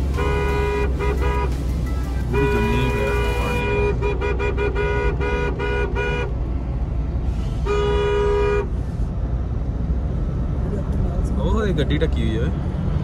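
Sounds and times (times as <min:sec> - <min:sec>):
vehicle horn honking: 0:00.1 - 0:06.3, 0:07.6 - 0:08.7.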